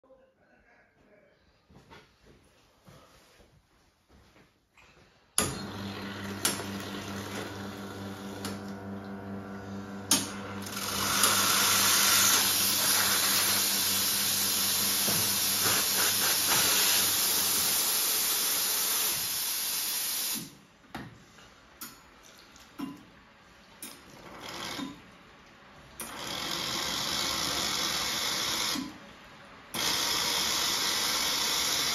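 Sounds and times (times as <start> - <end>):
low machine hum: 5.4 - 15.7
loud steam jet: 11.3 - 20.5.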